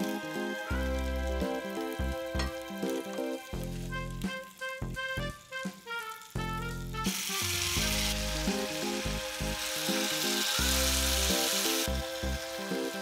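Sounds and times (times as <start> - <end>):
sauce sizzling on hot plate: 0.0 - 13.0.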